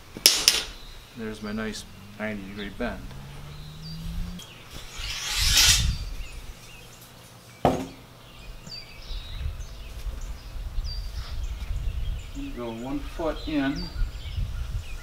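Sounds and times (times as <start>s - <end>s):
small birds chirping: 0.0s - 15.0s
rebar scraping on sand: 4.8s - 6.1s.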